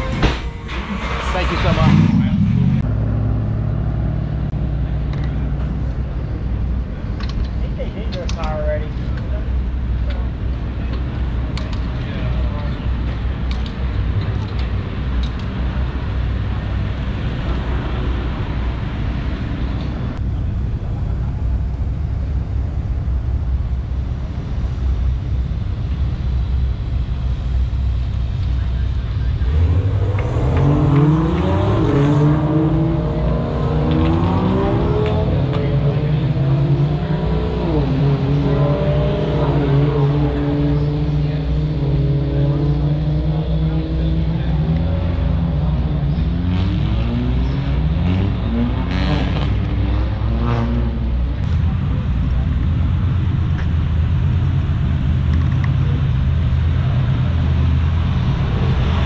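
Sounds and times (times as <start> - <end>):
low rumble: 0.0 - 37.1, 51.2 - 59.0
race car engines revving: 0.0 - 59.0.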